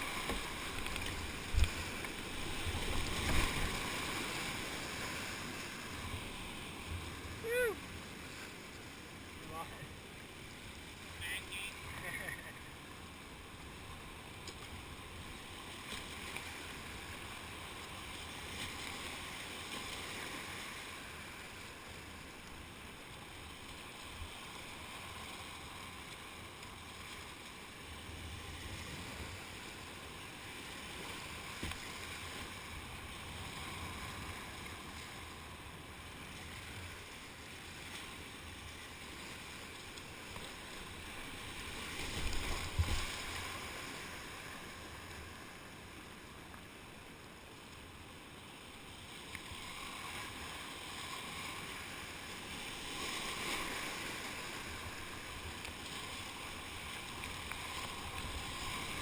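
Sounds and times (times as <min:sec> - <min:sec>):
whitewater rushing: 0:00.0 - 0:07.9
water splashing around a kayak: 0:00.0 - 0:59.0.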